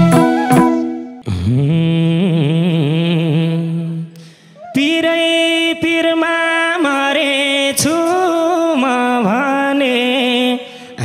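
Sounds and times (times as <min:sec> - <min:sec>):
higher voice singing long notes: 0:00.0 - 0:05.6
low voice singing: 0:00.0 - 0:06.2.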